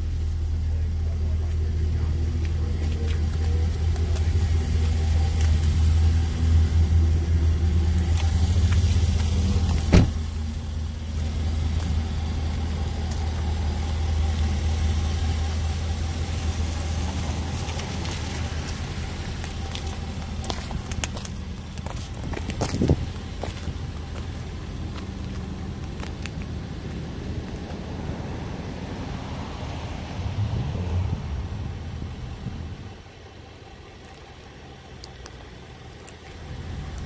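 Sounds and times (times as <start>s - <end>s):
car engine idling deep rumble: 0.0s - 37.0s
sharp thump: 9.8s - 10.2s.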